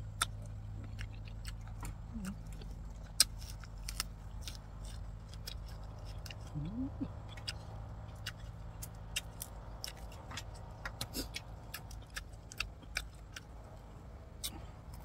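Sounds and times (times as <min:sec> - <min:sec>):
low hum: 0:00.0 - 0:15.0
vocal murmur: 0:06.5 - 0:07.3.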